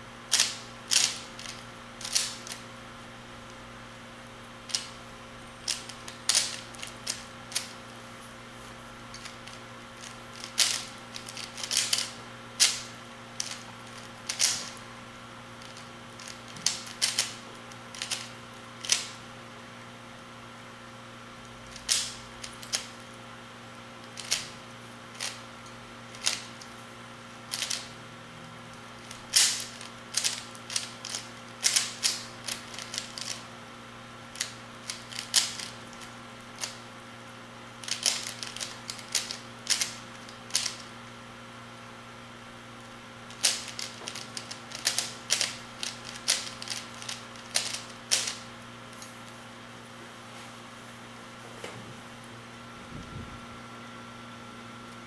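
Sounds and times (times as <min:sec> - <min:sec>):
puzzle cube layers clicking: 0:00.3 - 0:02.6, 0:10.0 - 0:12.8, 0:13.4 - 0:14.7, 0:43.3 - 0:48.4.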